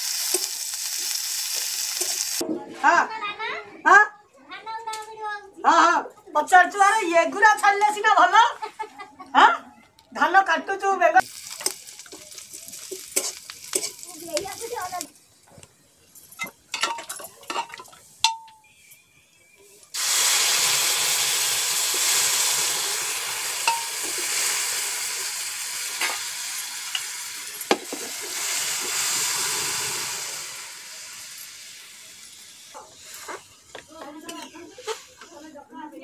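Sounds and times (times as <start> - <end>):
food frying in oil: 0.0 - 2.4, 11.2 - 15.2, 19.8 - 33.7
loud sizzle: 0.0 - 2.4, 11.2 - 16.1, 19.8 - 35.3
spatula scraping a pan: 12.9 - 14.0, 34.2 - 35.5.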